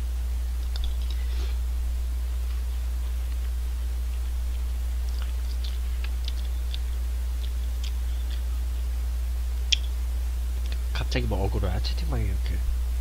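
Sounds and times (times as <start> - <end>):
low hum: 0.0 - 13.0
wet mouth clicks and smacks: 0.6 - 1.2, 4.5 - 8.4, 9.7 - 9.9, 10.6 - 10.8
person chewing noodles: 2.4 - 8.5.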